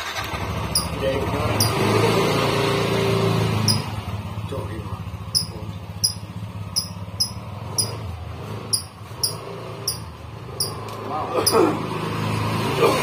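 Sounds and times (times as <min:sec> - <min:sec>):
high-pitched chirping: 0:00.7 - 0:00.9, 0:03.7 - 0:03.9, 0:05.4 - 0:08.0, 0:08.7 - 0:10.8.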